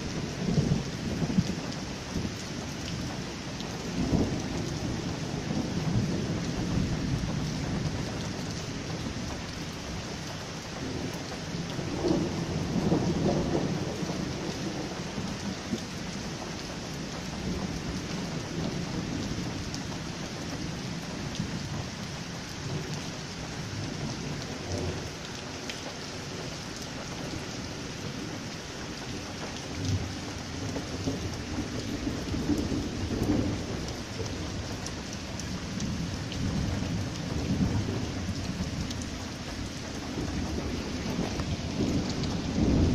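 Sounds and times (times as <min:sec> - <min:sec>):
heavy rain on paving: 0:00.0 - 0:42.9
thunder rumbling: 0:10.8 - 0:15.4, 0:27.2 - 0:42.9.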